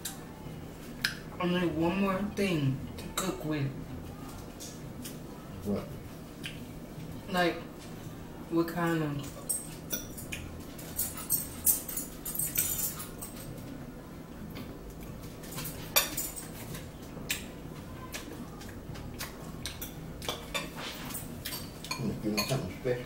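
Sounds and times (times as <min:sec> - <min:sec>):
fork clinking on ceramic bowl: 0:21.4 - 0:22.7.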